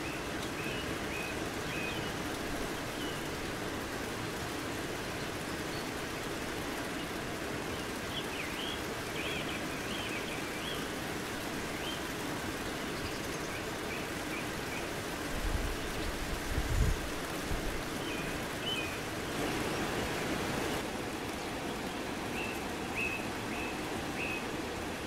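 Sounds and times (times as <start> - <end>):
small birds chirping: 0.0 - 3.4, 5.0 - 15.0, 17.8 - 19.8, 21.2 - 24.7
steady rain falling: 0.0 - 25.0.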